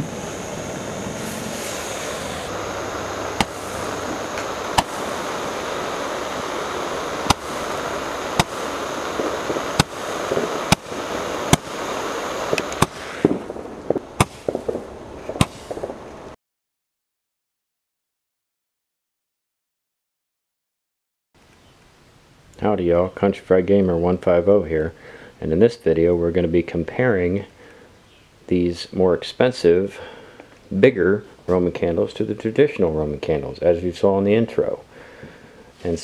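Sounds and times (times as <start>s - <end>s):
roman candle hissing and popping: 0.0s - 16.3s
crackling pops: 0.0s - 16.4s.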